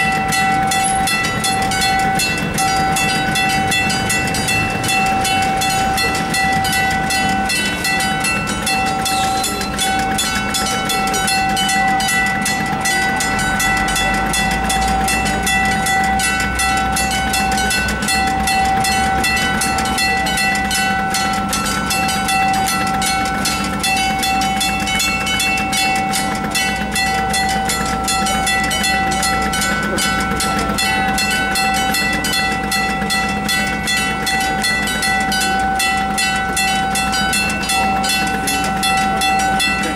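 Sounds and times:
level-crossing bell ringing: 0.0 - 39.9.

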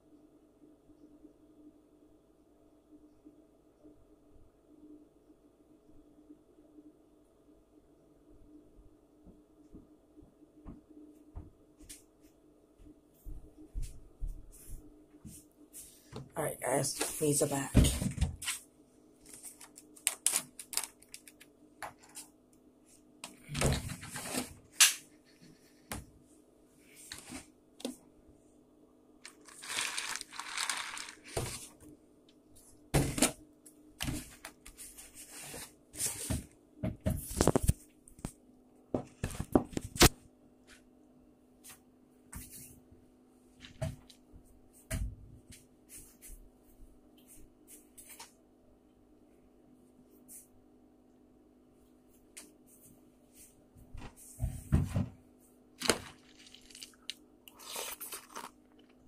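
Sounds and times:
faint steady hum: 0.0 - 59.0
rustling: 29.3 - 31.8.

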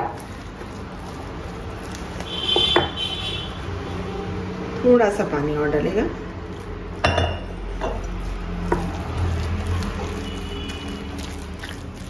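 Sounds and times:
spoon stirring thick batter: 0.0 - 3.5, 6.4 - 12.0
spoon clinking against glass bowl: 7.0 - 8.1.

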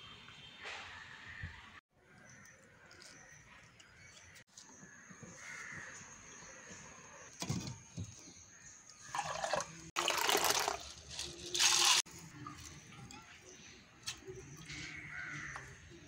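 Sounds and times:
liquid pouring into a pot: 9.1 - 12.1.

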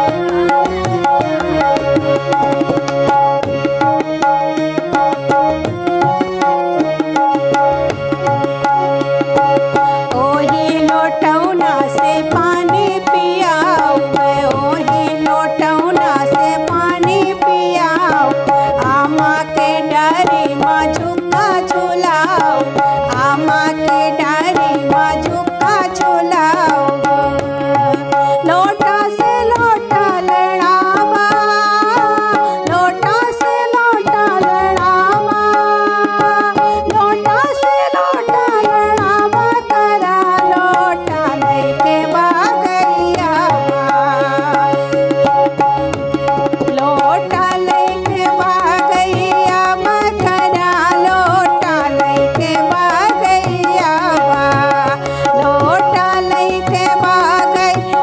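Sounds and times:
ornamented melody line: 0.0 - 58.0
tabla playing: 0.0 - 58.0.

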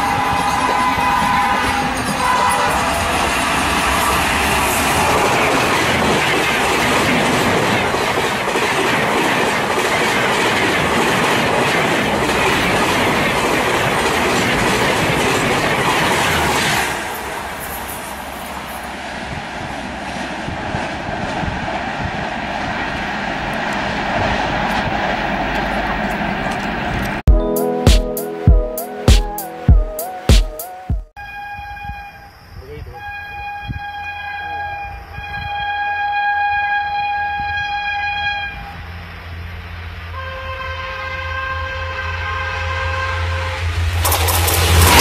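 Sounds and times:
train rumble: 0.0 - 27.2, 36.8 - 45.0
passing train rush: 0.0 - 30.3, 31.2 - 45.0
wheels clicking over rails: 44.0 - 45.0.

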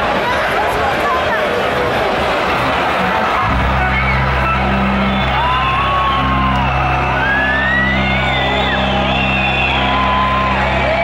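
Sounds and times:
crowd murmuring: 0.0 - 11.0
drone intro music: 3.4 - 10.9.

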